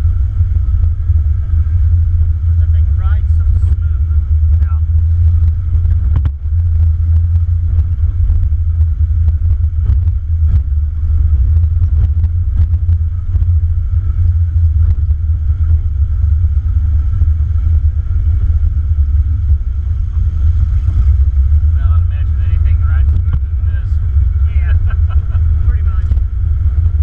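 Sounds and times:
off-road vehicle engine rumble: 0.0s - 27.0s.

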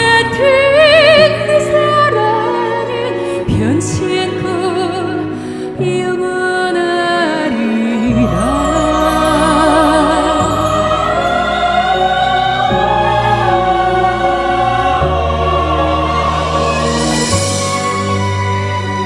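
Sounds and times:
music of long held notes: 0.4s - 19.0s
operatic singing with vibrato: 6.1s - 19.0s
orchestral accompaniment: 7.6s - 19.0s.

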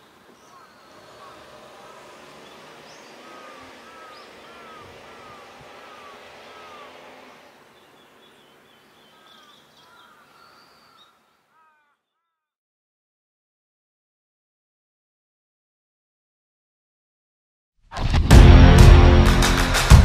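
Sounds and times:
steady background hiss: 0.0s - 11.6s
bird calling short arched notes: 0.0s - 12.5s
faint higher bird calls: 0.0s - 12.6s.

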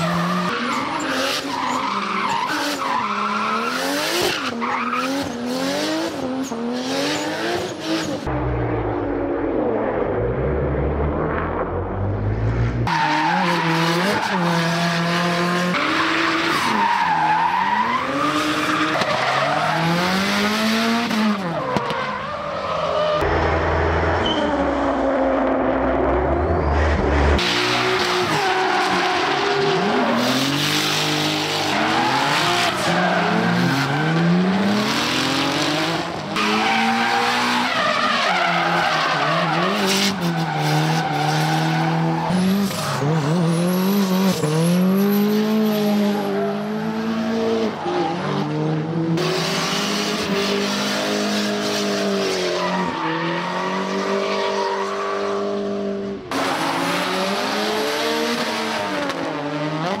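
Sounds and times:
tyres squealing and skidding: 0.0s - 5.6s, 12.8s - 23.3s, 26.3s - 59.1s
car engines revving: 0.0s - 60.0s.

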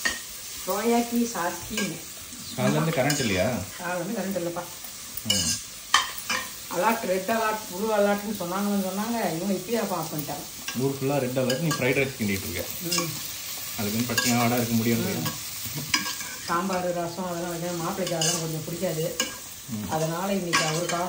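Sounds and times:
frying sizzle: 0.0s - 21.0s.

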